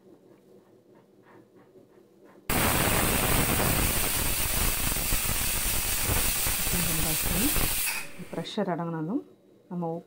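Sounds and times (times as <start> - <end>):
pressure cooker steam hiss: 2.5 - 8.4.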